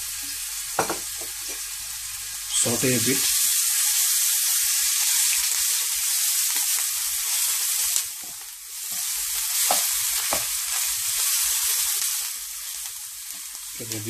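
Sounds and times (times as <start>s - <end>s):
paste sizzling in hot oil: 0.0s - 14.0s
spatula knocking pan: 0.8s - 1.4s, 9.0s - 10.6s.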